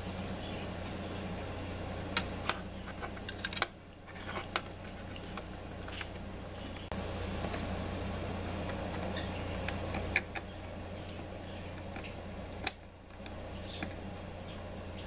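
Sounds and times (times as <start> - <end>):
steady low hum: 0.0 - 15.0
wires twisting handling noise: 2.1 - 14.1.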